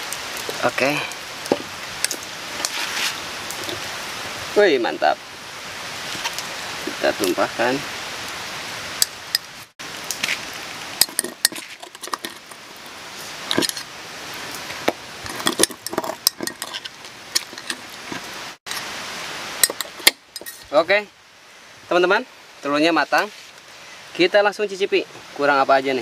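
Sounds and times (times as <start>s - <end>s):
metal spoon scraping metal mug: 11.0s - 12.9s, 13.5s - 13.9s, 15.2s - 18.8s, 19.6s - 20.7s.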